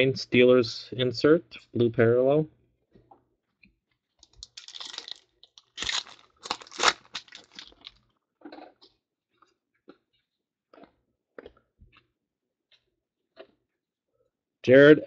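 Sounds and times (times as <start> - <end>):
cards rustling: 4.2 - 7.8
foil wrapper tearing and crinkling: 4.2 - 8.0.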